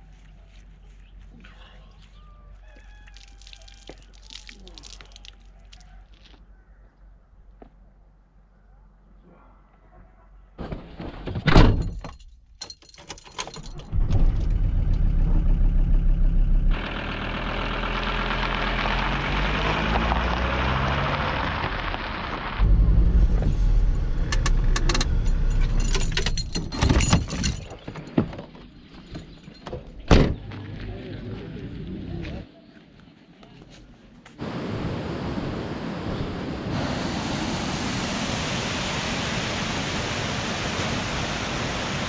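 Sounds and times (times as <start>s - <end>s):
tyres crunching on gravel: 0.0s - 6.5s
door shutting: 10.6s - 12.2s, 22.6s - 28.5s, 29.1s - 30.4s
van engine running: 13.9s - 27.3s
engine clicks: 24.2s - 28.2s.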